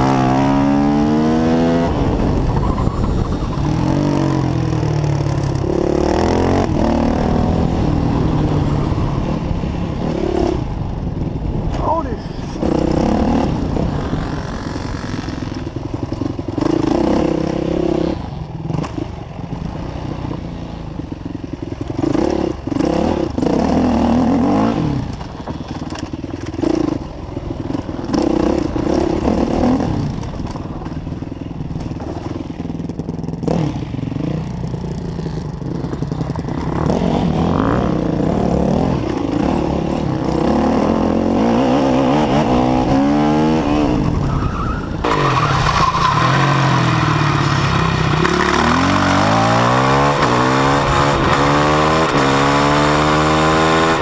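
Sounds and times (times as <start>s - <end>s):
dirt bike engine revving: 0.0s - 8.9s, 11.8s - 18.9s, 33.4s - 44.2s, 45.0s - 54.0s
wind noise: 0.0s - 18.4s, 35.3s - 54.0s
bike rattling: 10.8s - 17.1s, 25.0s - 39.4s.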